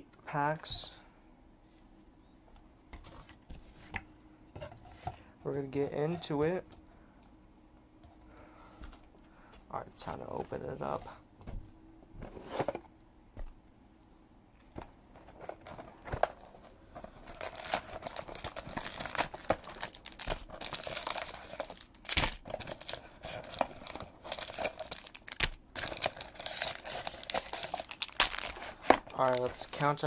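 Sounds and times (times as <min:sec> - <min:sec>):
foil packs crinkling: 0:15.2 - 0:30.0.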